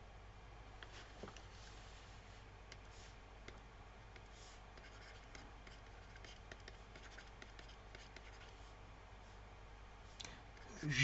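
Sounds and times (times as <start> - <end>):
stylus scratching on tablet: 4.2 - 8.6.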